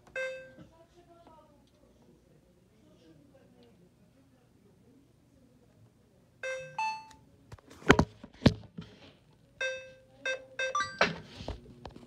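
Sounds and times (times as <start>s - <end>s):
washer electronic beeps: 0.0s - 0.6s, 6.4s - 7.1s, 9.6s - 11.2s.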